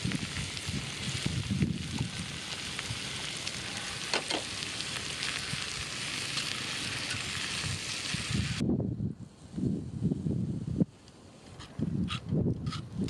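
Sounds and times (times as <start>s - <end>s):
sharp crackles: 0.0s - 8.6s
vegetables sizzling in a skillet: 0.0s - 8.6s.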